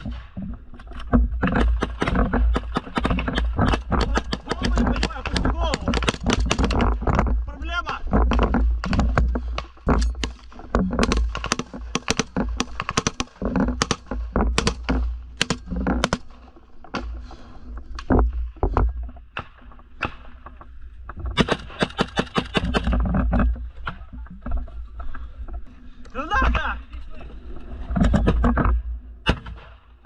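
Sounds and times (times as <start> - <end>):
rifle shots: 11.0 - 14.0, 21.4 - 22.9.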